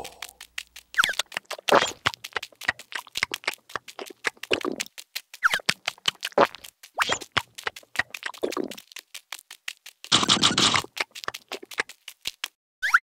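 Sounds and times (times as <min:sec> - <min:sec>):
short vocal noises: 0:00.0 - 0:00.4
cartoon ant feet tapping: 0:00.0 - 0:12.6.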